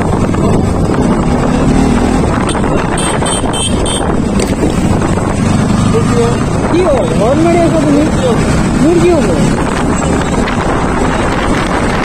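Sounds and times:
motorcycle engine rumble: 0.0s - 12.0s
wind buffeting microphone: 0.0s - 12.0s.

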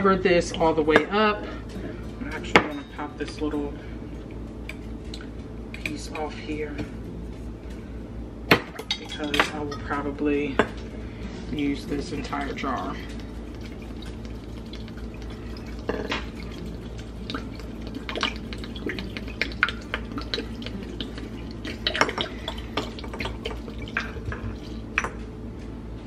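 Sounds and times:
liquid glugging and splashing: 11.6s - 25.3s
vinegar pouring into glass jar: 11.9s - 25.0s.

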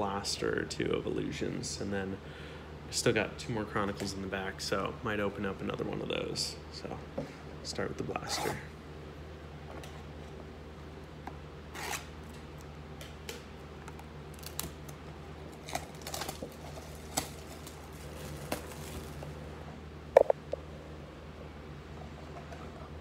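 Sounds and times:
cardboard and cellophane rustling: 15.6s - 19.4s.

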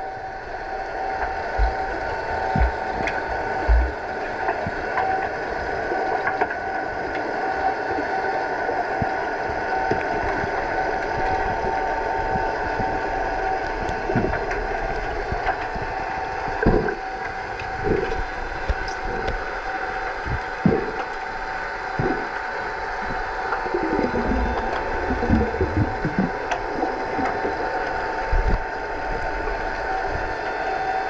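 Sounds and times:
steady machinery hum underwater: 0.0s - 31.0s
dull thumps of churned water: 1.2s - 5.4s, 8.9s - 30.3s
underwater clicks and knocks: 1.2s - 5.4s, 9.8s - 19.5s, 23.1s - 29.2s.

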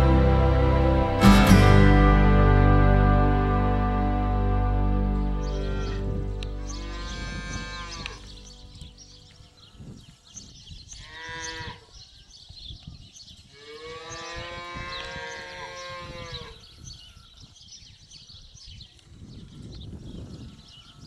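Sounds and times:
cow mooing: 5.4s - 8.5s.

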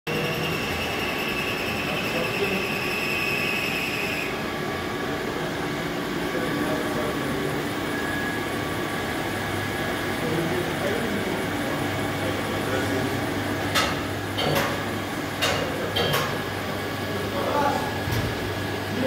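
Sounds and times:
thin high whine: 0.1s - 4.5s
milling machine humming: 0.1s - 19.0s.

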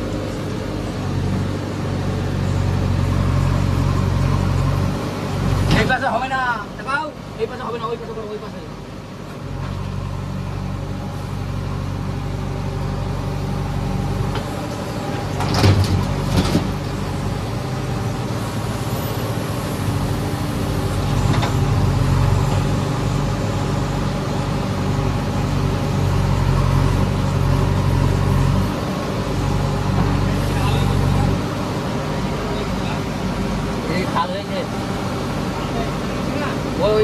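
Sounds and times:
diesel engine running under load: 0.0s - 37.0s.

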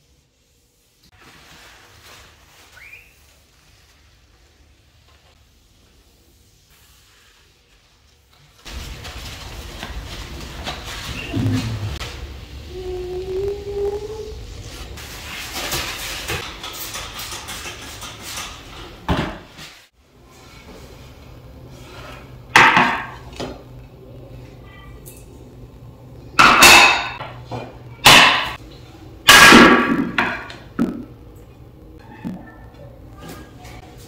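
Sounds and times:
cloth rubbing on mirror: 0.0s - 16.4s.

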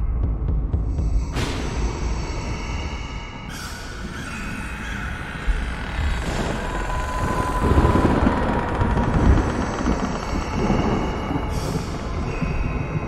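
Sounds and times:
deep steady rumble: 6.0s - 13.0s.

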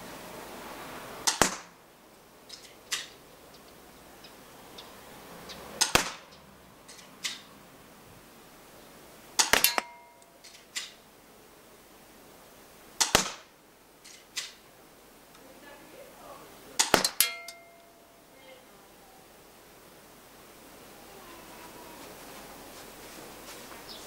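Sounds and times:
airsoft pistol shots: 1.2s - 1.8s, 5.8s - 6.3s, 9.4s - 10.0s, 13.0s - 13.5s, 16.8s - 17.4s.

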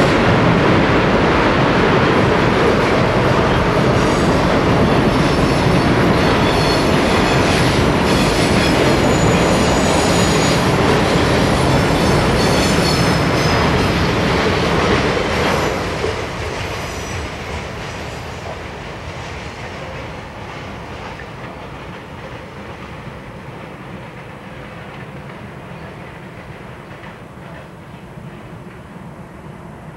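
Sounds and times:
train wheels rumbling on rail: 0.0s - 29.9s
high-pitched wheel squeal: 11.9s - 13.6s.

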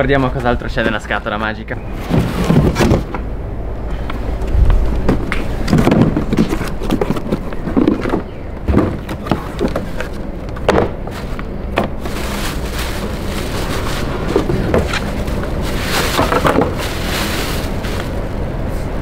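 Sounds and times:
cardboard knocking and scraping: 2.0s - 3.2s, 4.7s - 18.0s
plastic wrapping crinkling: 11.2s - 18.3s.

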